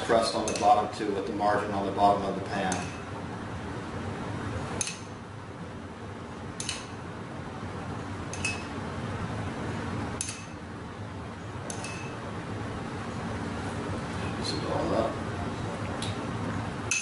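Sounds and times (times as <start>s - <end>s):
steady low hum: 0.0s - 17.0s
utensil clinking against dishware: 0.4s - 0.8s.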